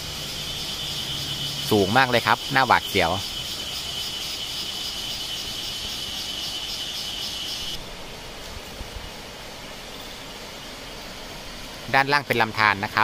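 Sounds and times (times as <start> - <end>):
insects trilling: 0.0 - 7.8
stream flowing: 0.0 - 13.0.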